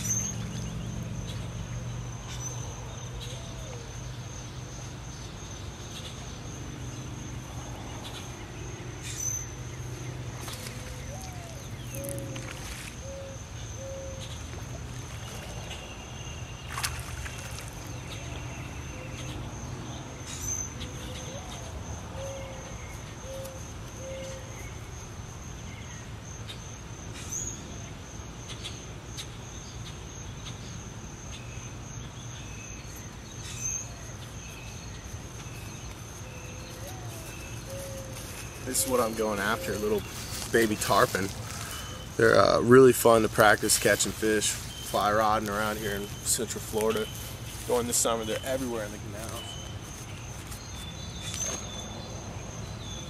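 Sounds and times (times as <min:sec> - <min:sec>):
insect trilling: 0:05.9 - 0:19.4, 0:33.5 - 0:50.1.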